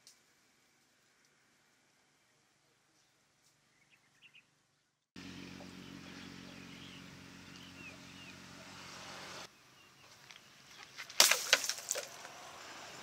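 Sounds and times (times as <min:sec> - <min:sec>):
small birds chirping: 0:02.2 - 0:11.2
steady low hum: 0:04.6 - 0:11.0.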